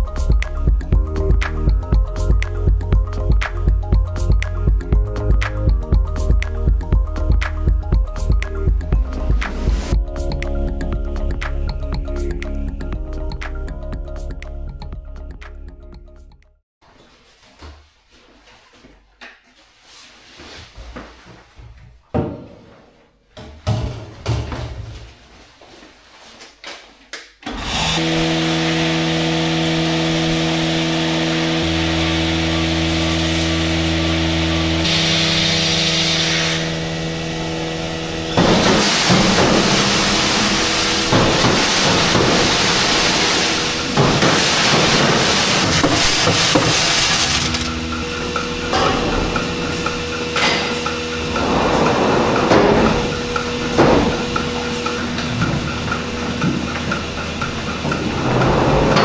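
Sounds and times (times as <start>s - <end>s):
machinery motor hum: 27.9s - 59.0s
machinery rattling and clattering: 40.8s - 59.0s.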